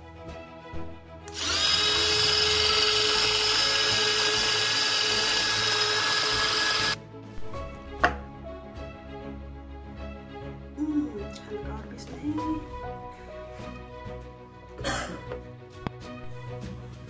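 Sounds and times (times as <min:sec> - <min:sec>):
electric chopper motor whine: 0:01.3 - 0:07.0.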